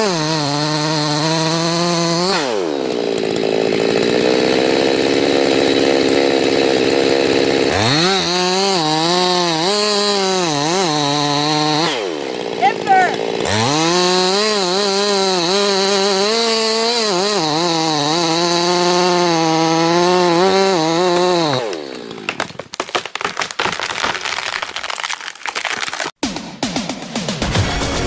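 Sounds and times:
chainsaw cutting tree trunk: 0.0 - 26.2
tree cracking and falling: 19.8 - 26.2.

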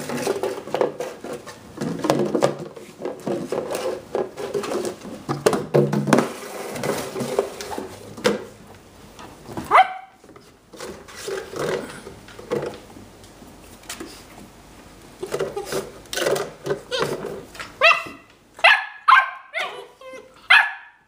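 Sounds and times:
plastic container knocking on floor: 1.8 - 7.4
dog yipping: 9.7 - 10.2, 17.8 - 21.0.

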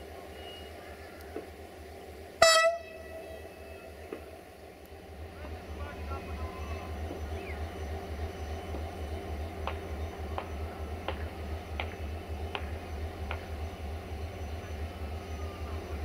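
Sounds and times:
diesel train engine idling: 0.0 - 16.0
sharp ticks: 9.6 - 13.6.

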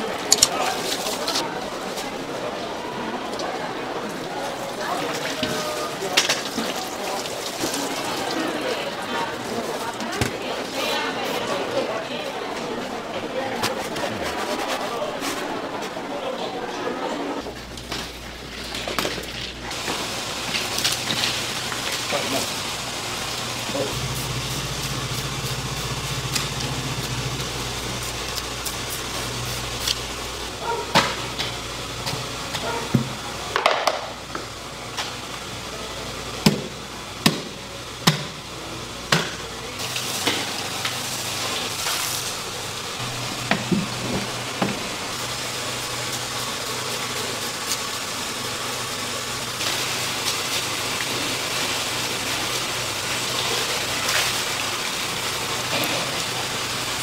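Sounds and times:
water running from hose: 3.4 - 11.6, 18.7 - 33.6, 39.5 - 57.0
scraping fish scales: 13.7 - 15.6.

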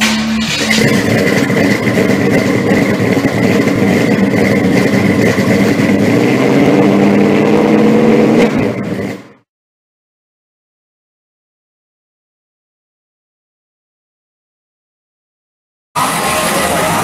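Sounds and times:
sustained soundtrack drone: 0.0 - 9.4.

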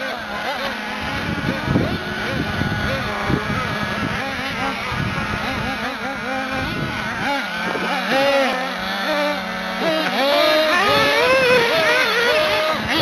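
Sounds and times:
low steady engine note: 0.0 - 13.0
rc buggy engines revving: 0.0 - 13.0.

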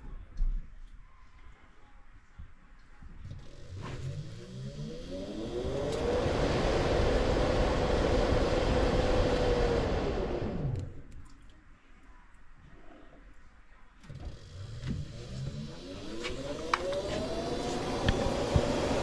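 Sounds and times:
blower motor whine: 3.3 - 11.1, 14.2 - 19.0
rush of air: 3.6 - 11.0.

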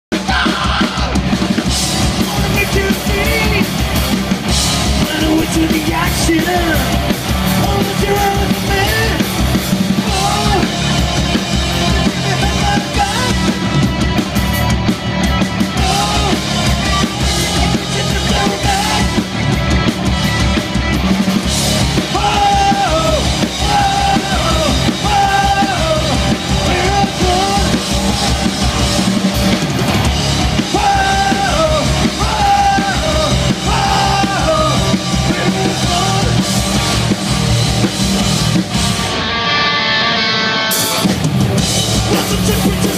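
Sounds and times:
bass guitar: 0.1 - 42.9
drum kit: 0.1 - 42.9
electric guitars: 0.1 - 42.9.

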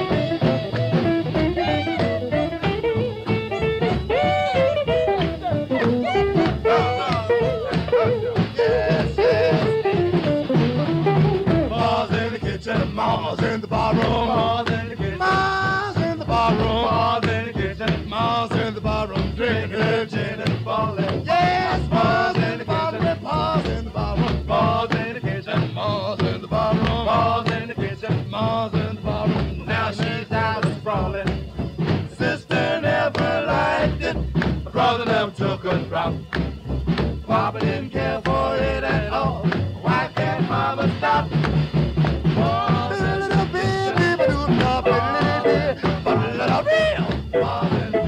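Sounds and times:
horn solo: 0.0 - 11.8, 42.4 - 48.0
rhythm section swinging beat: 0.0 - 48.0.

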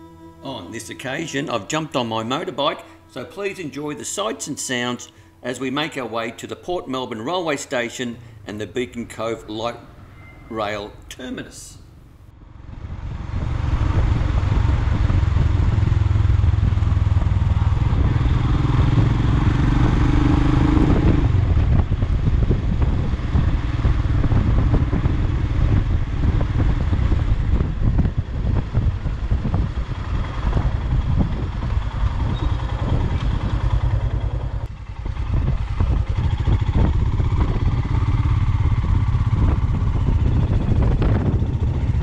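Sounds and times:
motorcycle engine running: 11.9 - 42.0.

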